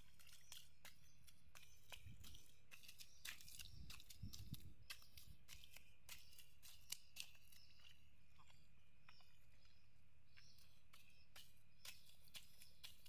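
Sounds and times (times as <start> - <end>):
hoe chopping grass and mud: 0.0 - 8.0, 11.2 - 13.0.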